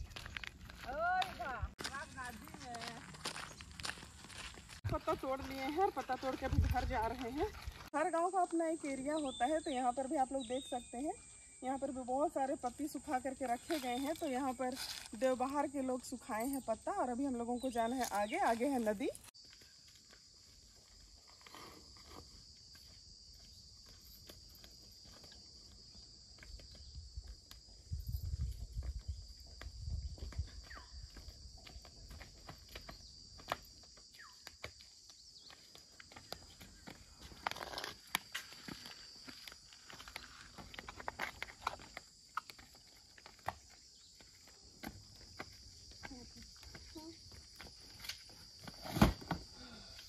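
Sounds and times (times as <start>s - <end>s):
footsteps on dry leaves: 0.0s - 7.9s.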